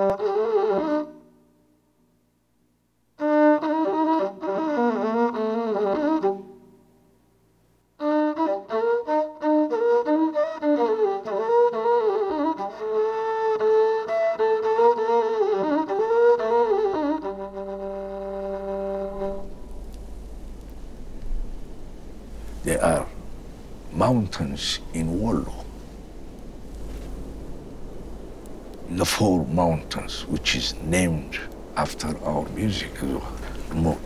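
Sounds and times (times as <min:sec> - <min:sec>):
bowed fiddle melody: 0:00.0 - 0:01.3, 0:03.2 - 0:06.7, 0:08.0 - 0:19.8.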